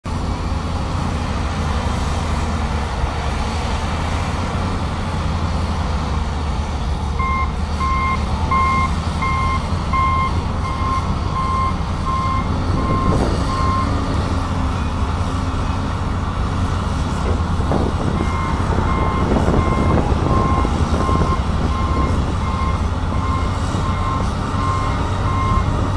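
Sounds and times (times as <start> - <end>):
heavy engines rumbling: 0.0 - 25.9
backup alarm beeping: 7.2 - 14.0, 18.2 - 25.7.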